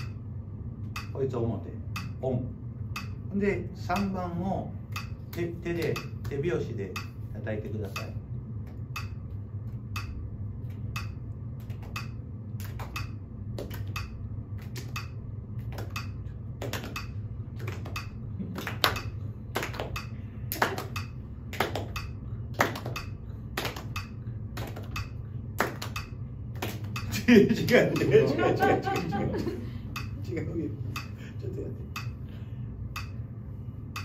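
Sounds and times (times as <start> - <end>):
metronome ticking: 0.9 - 1.3, 1.9 - 2.2, 2.9 - 4.3, 4.9 - 7.2, 7.8 - 8.2, 8.8 - 9.3, 9.9 - 10.2, 10.9 - 12.2, 12.8 - 15.2, 15.8 - 17.2, 17.8 - 18.2, 18.8 - 19.2, 19.8 - 20.2, 20.8 - 21.2, 21.8 - 22.2, 22.8 - 23.2, 23.8 - 26.2, 26.8 - 29.2, 29.9 - 30.2, 30.9 - 31.2, 31.9 - 32.2, 32.9 - 33.2
hand claps: 11.0 - 28.1.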